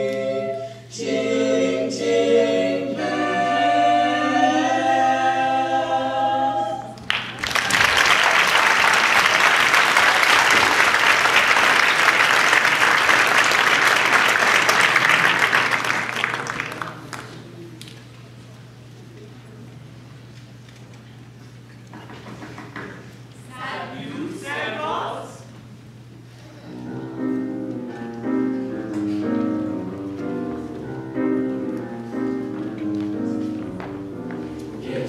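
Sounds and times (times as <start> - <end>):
a cappella choir holding a chord: 0.0 - 7.0, 34.6 - 35.0
audience applause: 7.1 - 17.5.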